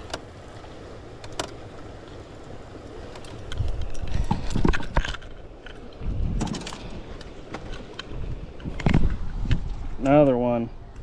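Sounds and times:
fishing tackle knocking and clattering: 3.1s - 10.4s.

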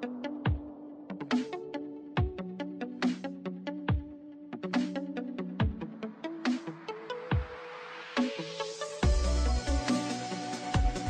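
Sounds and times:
electronic music: 0.0s - 11.0s
deep bass line: 9.0s - 9.9s.

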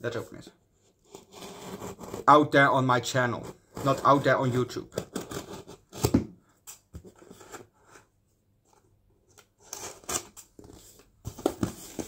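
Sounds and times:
hands scraping cardboard: 1.0s - 2.4s.

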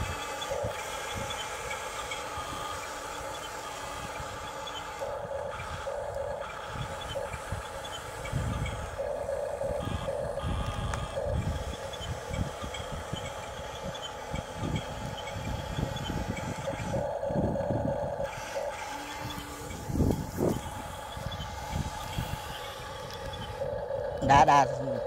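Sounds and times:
toy bulldozer motors humming: 0.0s - 25.0s.

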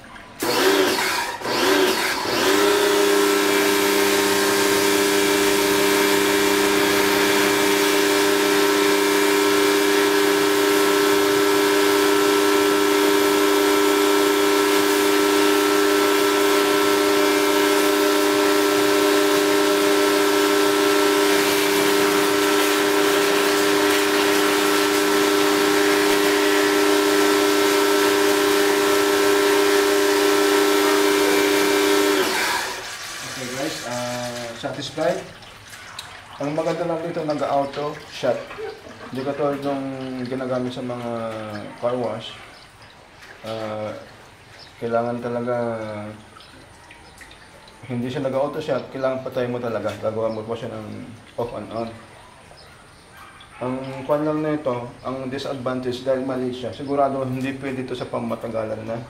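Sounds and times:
pressure washer motor whine: 0.0s - 35.2s
water jet hissing: 0.0s - 49.2s.

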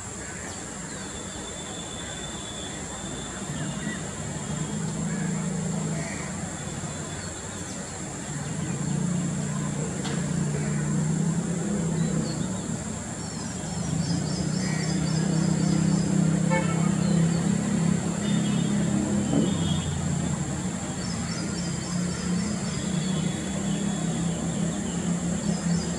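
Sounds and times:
small birds chirping: 6.2s - 19.9s.

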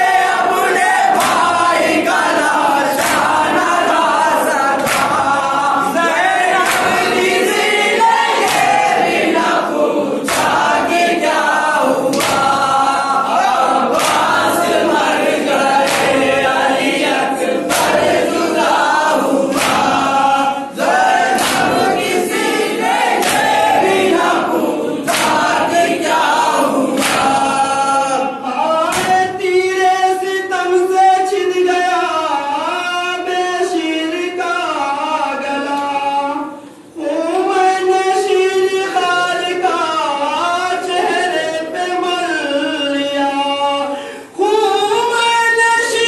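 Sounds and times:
men singing in chorus: 0.0s - 46.0s
hands slapping chests: 1.1s - 1.5s, 2.9s - 3.4s, 4.8s - 5.3s, 6.6s - 7.1s, 12.1s - 12.7s, 13.9s - 14.5s, 15.8s - 16.3s, 17.7s - 18.2s, 19.5s - 20.0s, 21.3s - 22.1s, 23.2s - 23.7s, 25.1s - 25.6s, 27.0s - 27.5s.

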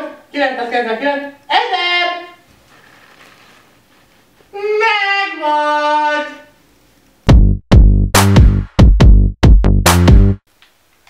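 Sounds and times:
person singing high: 4.5s - 6.6s
electronic music with drum beat: 7.3s - 10.4s.

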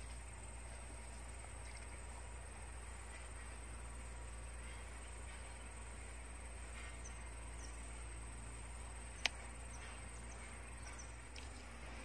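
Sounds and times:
steady low hum: 0.0s - 12.0s
sharp click: 9.2s - 9.9s.

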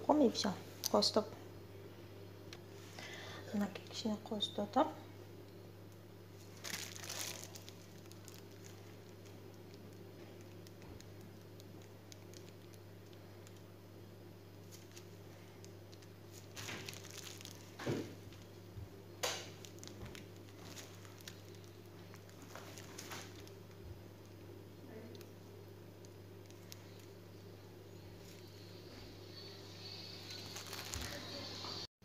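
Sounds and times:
steady low hum: 0.0s - 31.9s
plastic piping bag crinkling: 6.3s - 13.8s, 14.4s - 27.5s, 28.1s - 28.6s, 30.0s - 31.5s.

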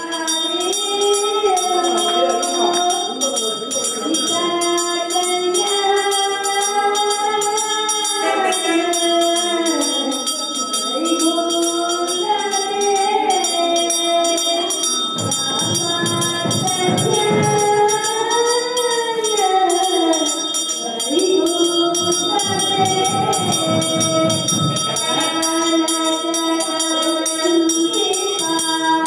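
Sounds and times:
hand bell ringing: 0.0s - 29.0s.

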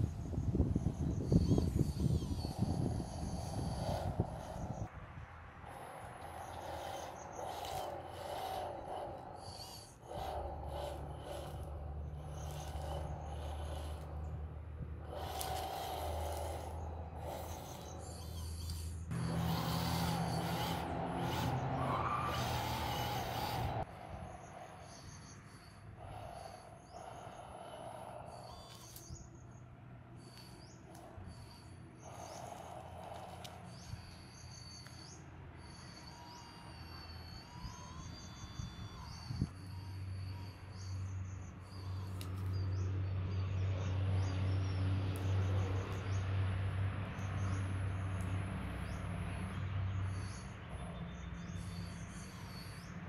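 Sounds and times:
steady low hum: 0.0s - 39.9s
hydraulic pump whirring: 1.0s - 4.8s, 5.6s - 24.2s, 25.9s - 29.2s, 30.3s - 34.2s.

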